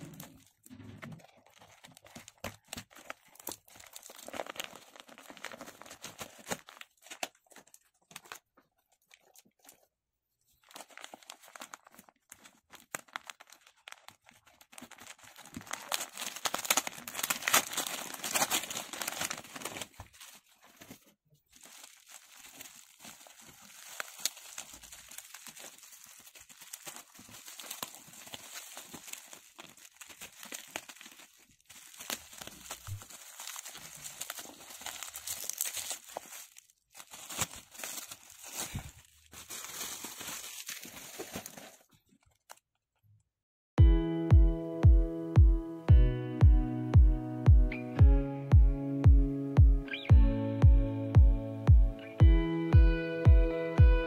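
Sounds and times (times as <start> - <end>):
packaging crinkling and tearing: 0.0 - 9.9, 10.5 - 42.6.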